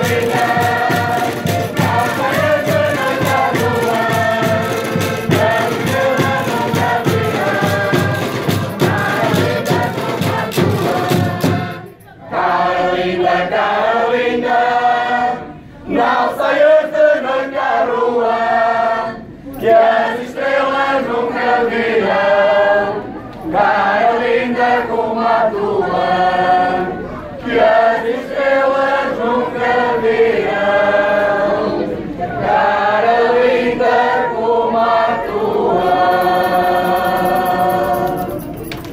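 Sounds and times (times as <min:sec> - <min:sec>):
accordion: 0:00.0 - 0:12.7
folk group singing in chorus: 0:00.0 - 0:38.9.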